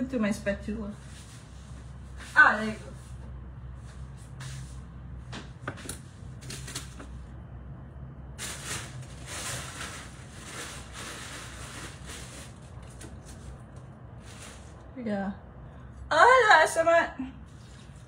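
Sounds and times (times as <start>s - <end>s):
scraping and rustling: 8.4s - 14.9s.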